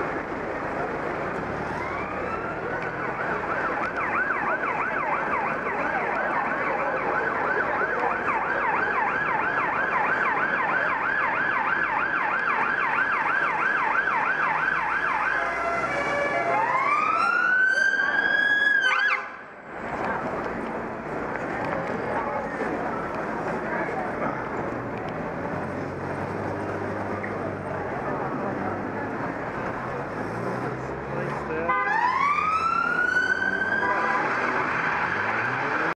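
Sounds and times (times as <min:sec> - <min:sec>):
street traffic noise: 0:00.0 - 0:35.9
police siren yelping: 0:01.7 - 0:19.4, 0:31.7 - 0:35.9.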